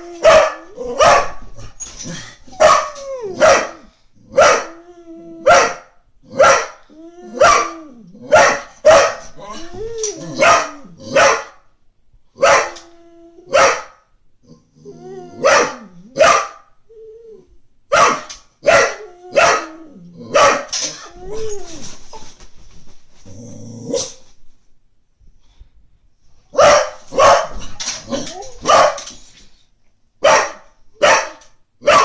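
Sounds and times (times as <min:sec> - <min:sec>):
dog barking: 0:00.2 - 0:01.4, 0:02.6 - 0:04.7, 0:05.4 - 0:06.8, 0:07.4 - 0:07.7, 0:08.3 - 0:09.3, 0:10.4 - 0:11.6, 0:12.4 - 0:12.8, 0:13.5 - 0:14.0, 0:15.4 - 0:16.7, 0:17.9 - 0:19.7, 0:20.3 - 0:20.7, 0:26.5 - 0:27.6, 0:28.6 - 0:29.1, 0:30.2 - 0:32.0
dog whining and growling: 0:06.9 - 0:08.3, 0:09.4 - 0:11.1, 0:14.4 - 0:16.2, 0:16.9 - 0:17.6, 0:19.0 - 0:22.0, 0:23.2 - 0:24.2, 0:28.0 - 0:28.7.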